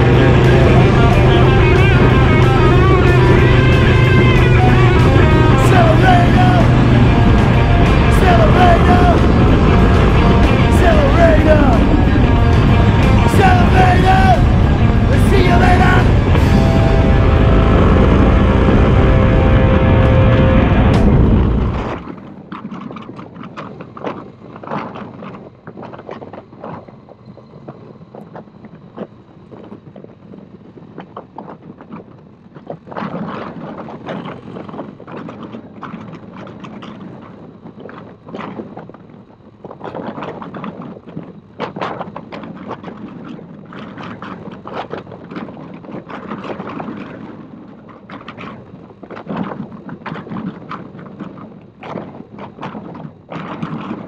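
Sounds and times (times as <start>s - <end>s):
motorcycle engine running: 0.0s - 22.3s
wind buffeting microphone: 0.0s - 54.0s.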